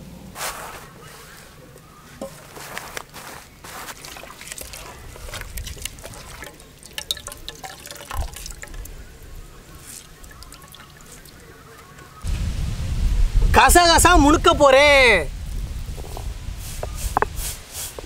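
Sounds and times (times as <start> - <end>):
hands squishing wet coconut: 0.5 - 12.2
liquid dripping into pot: 4.0 - 12.2.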